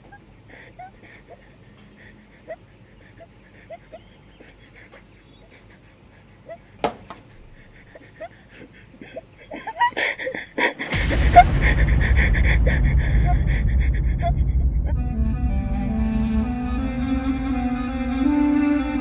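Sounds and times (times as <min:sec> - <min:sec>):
soundtrack music with deep bass: 0:10.9 - 0:19.0.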